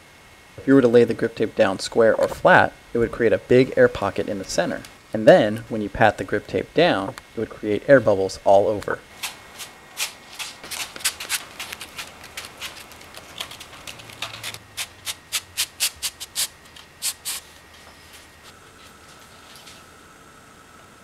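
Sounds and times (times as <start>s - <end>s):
hand patting grip tape: 9.2s - 17.5s.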